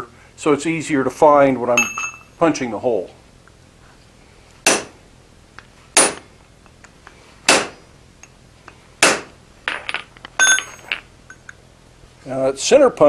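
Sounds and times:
hammer striking punch on metal: 4.6 - 5.0, 6.0 - 6.3, 7.5 - 7.8, 9.0 - 9.3.

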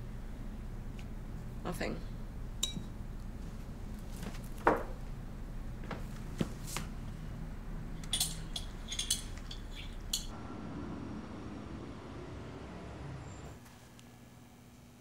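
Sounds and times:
quiet steady background: 5.1 - 14.2
dishes and cutlery clattering: 8.0 - 10.3.

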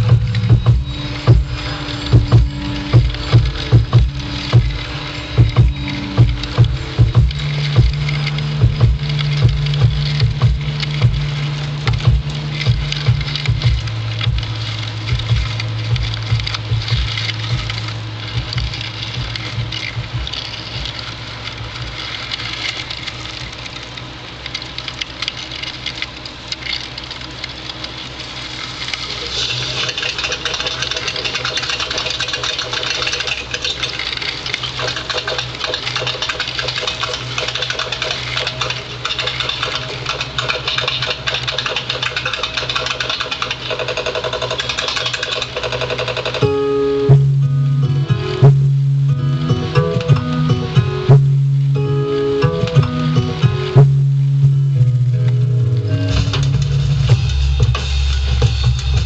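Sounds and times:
clicking percussive hits: 0.0 - 21.1, 29.3 - 54.6
bright dense electronic layer: 0.0 - 23.8
low bass drone: 0.0 - 27.5, 28.6 - 59.0.

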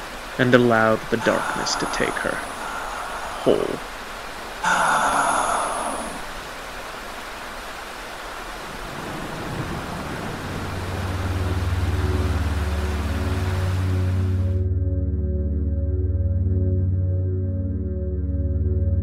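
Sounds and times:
rain against windows: 0.0 - 14.5
low ambient music drone: 0.4 - 6.0, 9.5 - 19.0.

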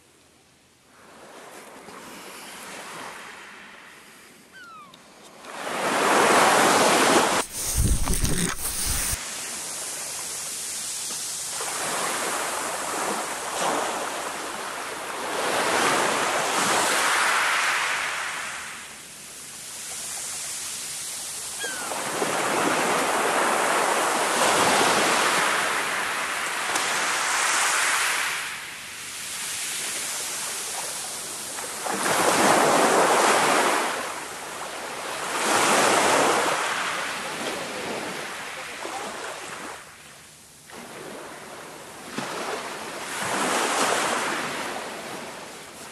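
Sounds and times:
waves washing up shingle beach: 5.5 - 39.9, 40.7 - 45.9.

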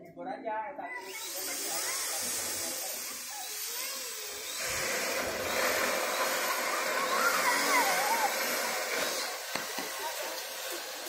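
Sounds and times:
power drill running: 1.0 - 11.0.

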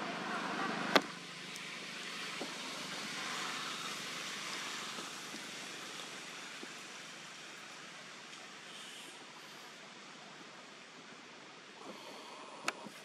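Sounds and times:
outdoor background hiss: 0.0 - 13.0
faint ticks: 11.8 - 13.0.

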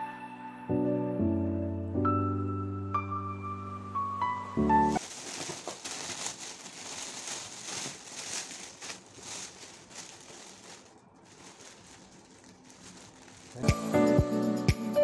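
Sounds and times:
background music: 0.0 - 5.0, 13.4 - 15.0
foil gift wrap crinkling: 4.9 - 14.1.

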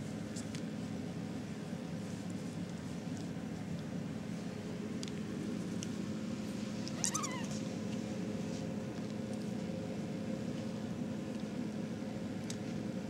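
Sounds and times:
steady low hum: 0.0 - 13.0
kitten mewing: 7.0 - 7.6.

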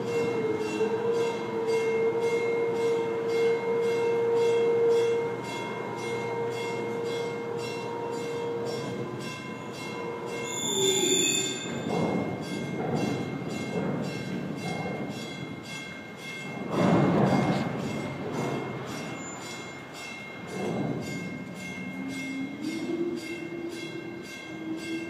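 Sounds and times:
high metallic machinery squeal: 9.6 - 12.2, 18.9 - 20.0
higher screech: 10.3 - 11.8.

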